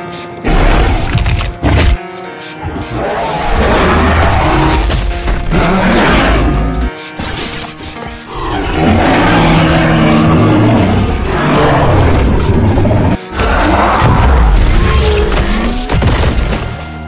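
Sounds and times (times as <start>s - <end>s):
dramatic soundtrack music: 0.0s - 17.0s
dinosaur roar: 2.6s - 6.8s, 8.3s - 15.4s.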